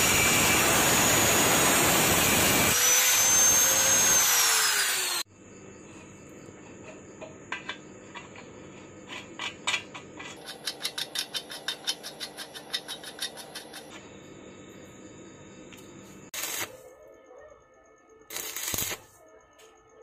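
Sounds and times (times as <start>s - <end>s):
angle grinder cutting steel: 0.0s - 5.3s.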